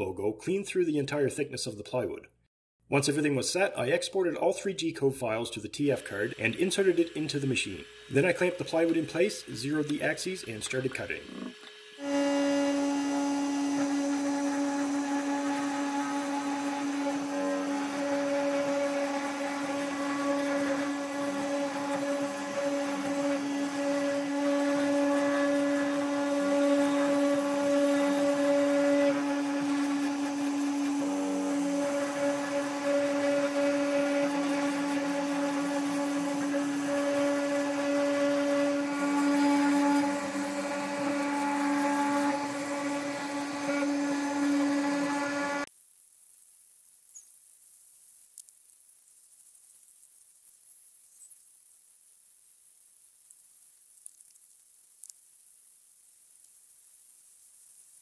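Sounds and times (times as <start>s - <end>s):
bit cutting plywood: 5.8s - 45.7s
router spindle whining: 5.8s - 45.7s.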